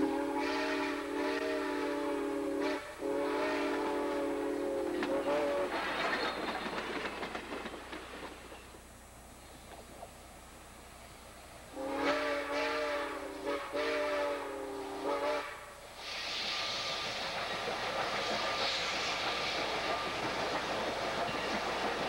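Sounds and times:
steam whistle blast: 0.0s - 5.8s, 11.7s - 16.9s
steam hissing: 0.0s - 10.2s, 10.9s - 22.0s
locomotive running noise: 0.0s - 22.0s.

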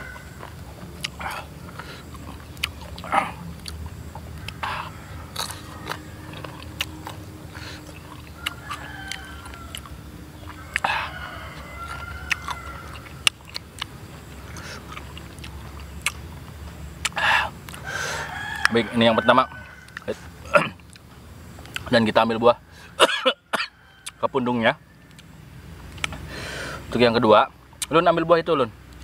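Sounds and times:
crisp bites and chewing: 5.2s - 17.9s.

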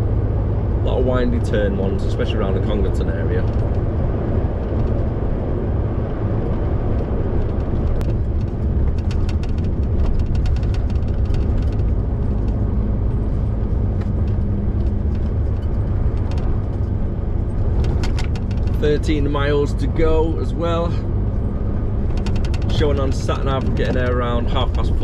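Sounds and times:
lorry engine drone: 0.0s - 25.0s
road noise: 0.0s - 25.0s.

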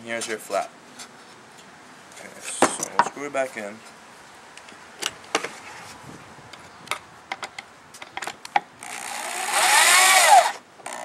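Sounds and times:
power drill driving a screw: 8.8s - 11.0s.

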